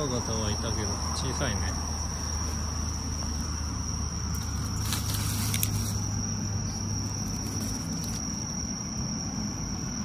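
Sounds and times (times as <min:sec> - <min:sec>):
night insects trilling: 0:00.0 - 0:10.0
rustling of leaf litter and twigs: 0:04.2 - 0:08.6.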